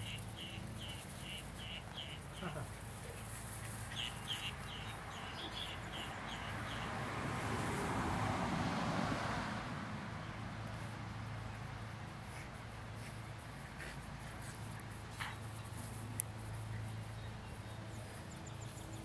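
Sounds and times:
small bird chirping: 0.0s - 2.6s.

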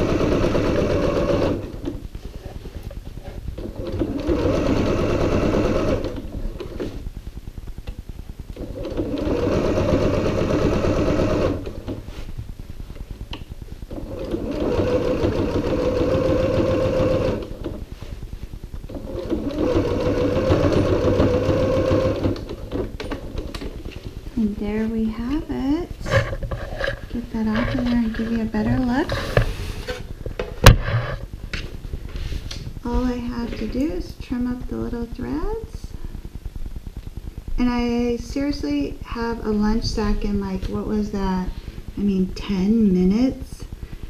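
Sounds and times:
sewing machine stitching: 0.0s - 2.0s, 3.6s - 7.0s, 8.6s - 12.0s, 13.9s - 17.8s, 18.9s - 23.7s.

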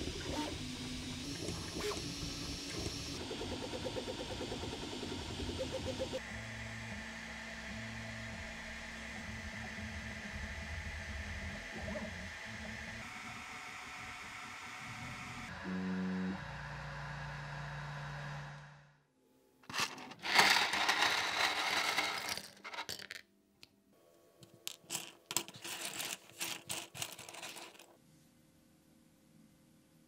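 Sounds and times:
plastic parts clattering onto mat: 19.7s - 23.2s, 24.4s - 27.9s.

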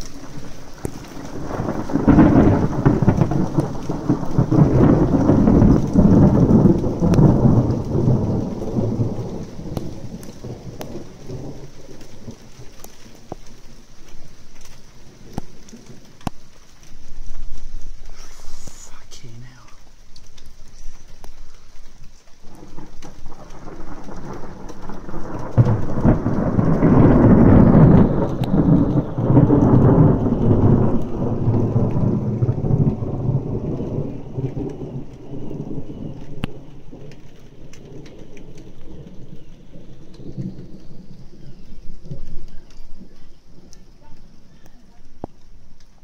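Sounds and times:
steady rain: 0.0s - 46.0s
thunder rumbling: 0.0s - 46.0s.

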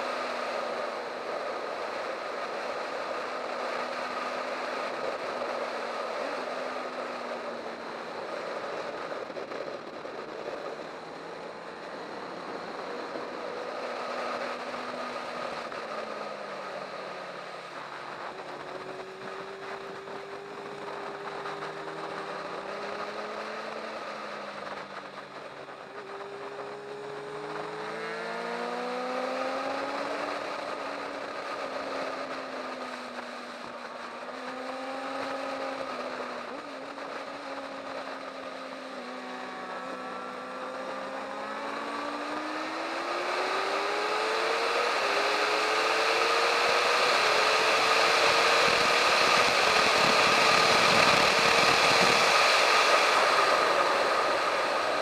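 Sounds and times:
motorcycle engine revving: 0.0s - 55.0s
wind rush on microphone: 41.4s - 55.0s.

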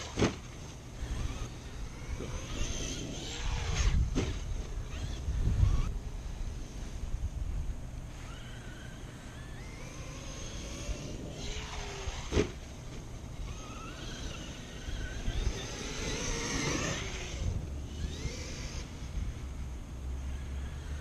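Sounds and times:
electric motor whining: 0.0s - 21.0s
wind rumble on microphone: 1.0s - 21.0s.

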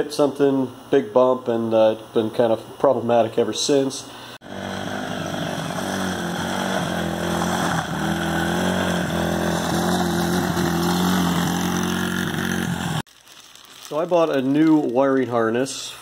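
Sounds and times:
small engine running: 4.4s - 13.1s.

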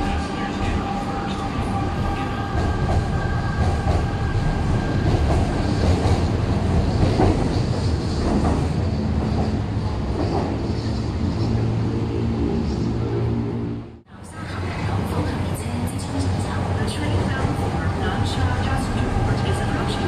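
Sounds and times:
train running noise: 0.0s - 20.0s.

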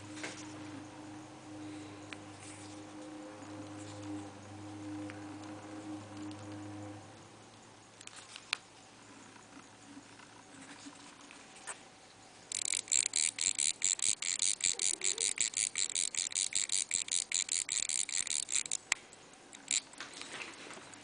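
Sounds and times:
watch winding ratchet clicks: 12.5s - 20.0s.

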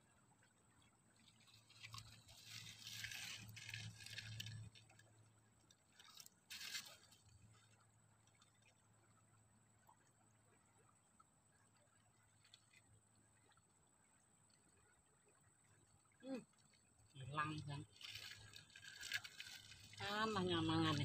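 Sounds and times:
faint scraping and crunching: 1.2s - 8.8s, 11.7s - 13.6s, 16.4s - 21.0s.

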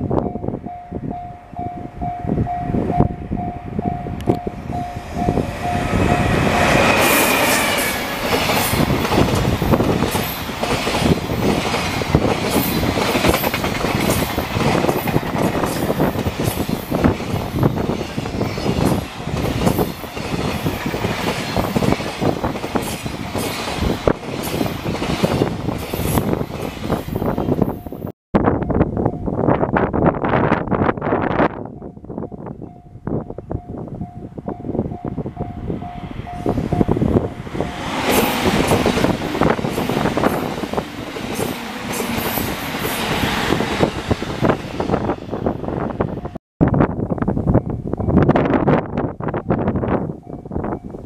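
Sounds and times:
train rushing past: 1.9s - 28.1s, 34.3s - 46.4s.

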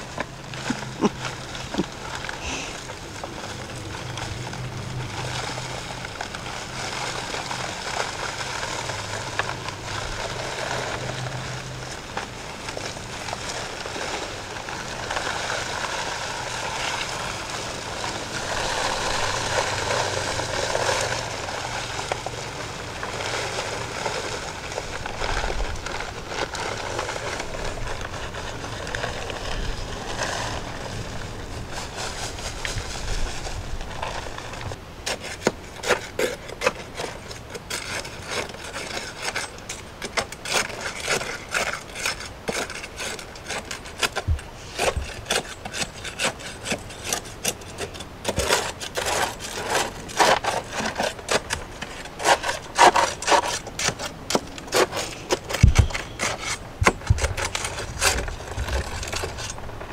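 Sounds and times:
dry concrete mix pouring: 0.0s - 59.9s.

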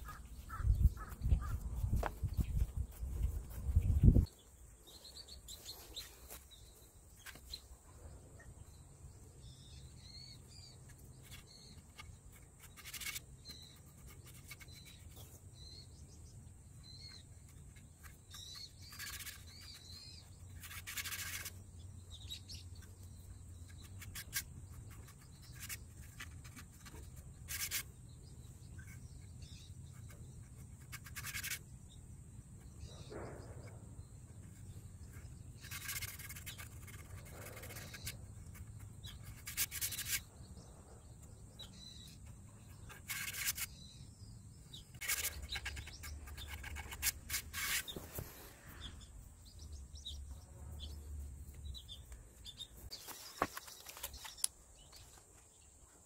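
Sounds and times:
faint bird chirps: 0.0s - 56.0s
fingertips scraping cement paste: 34.8s - 40.2s, 44.9s - 48.5s.

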